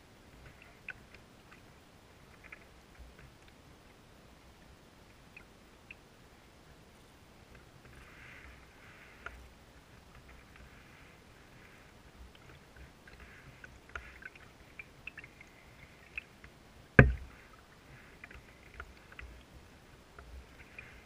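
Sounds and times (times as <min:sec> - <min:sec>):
water dripping and trickling: 0:10.0 - 0:21.0.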